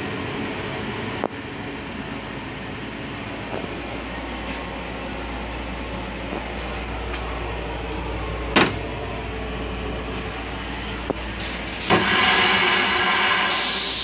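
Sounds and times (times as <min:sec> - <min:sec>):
low train rumble: 0:00.0 - 0:14.0
toilet flush rushing hiss: 0:08.9 - 0:14.0.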